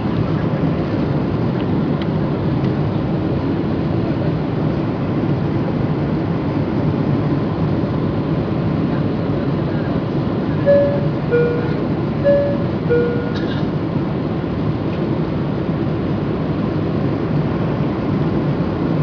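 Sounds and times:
airplane cabin noise: 0.0s - 19.0s
two-tone cabin chime: 10.6s - 13.6s.

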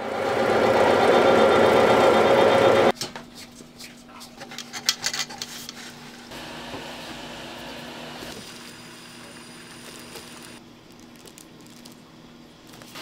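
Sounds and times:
machine running with loud hum: 0.0s - 2.9s, 6.3s - 10.6s.

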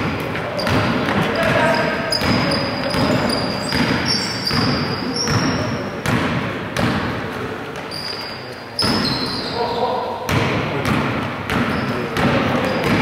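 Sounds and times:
sneaker squeaks: 0.0s - 6.2s, 7.7s - 10.2s, 11.5s - 13.0s
basketball bouncing on wooden floor: 0.0s - 7.2s, 10.3s - 13.0s.

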